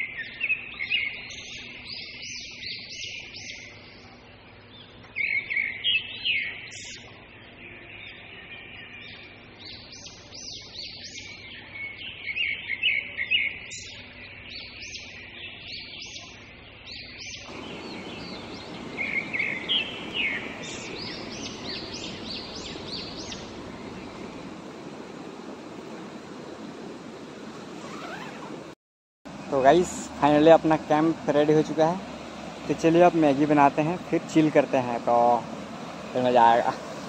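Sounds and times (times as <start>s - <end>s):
birds chirping: 0.0s - 37.0s
stream water rushing: 17.5s - 37.0s.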